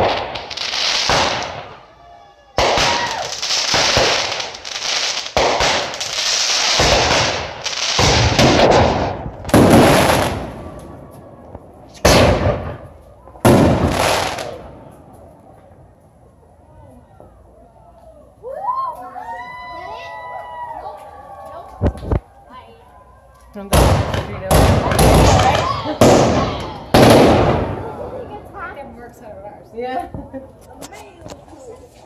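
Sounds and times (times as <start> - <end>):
fireworks bangs: 0.0 - 15.9, 23.6 - 29.0
fireworks crackling and fizzing: 0.0 - 17.6, 21.6 - 32.0.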